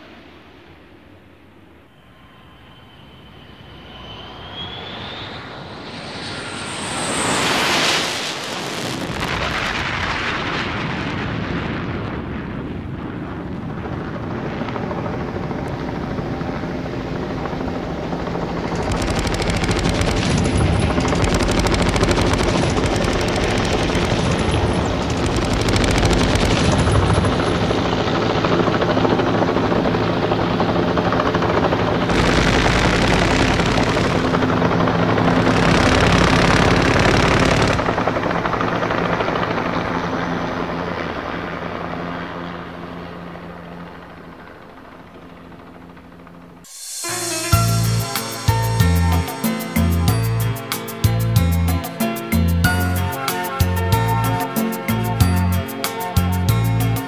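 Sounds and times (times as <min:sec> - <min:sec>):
aircraft passing with rising whine: 0:00.0 - 0:10.7, 0:12.7 - 0:57.0
aircraft engine drone: 0:00.0 - 0:57.0.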